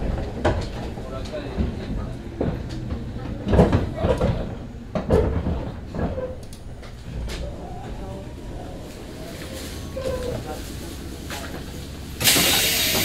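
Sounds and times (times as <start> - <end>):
knocks and thuds in train cabin: 0.0 - 8.0
low steady train rumble: 0.0 - 13.0.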